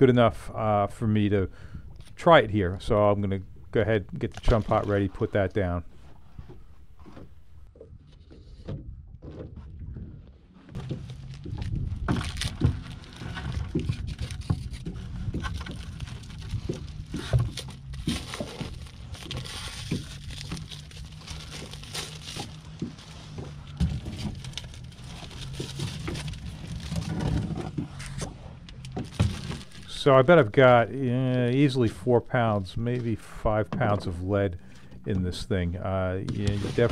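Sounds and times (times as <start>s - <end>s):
steady low hum: 0.0s - 36.9s
plastic wrapping rustling: 10.8s - 30.4s, 36.3s - 36.9s.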